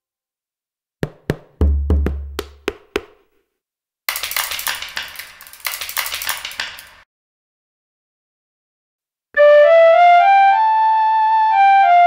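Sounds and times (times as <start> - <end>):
frame drum hits: 1.0 - 3.0
clattering bones with reverb: 4.1 - 7.0.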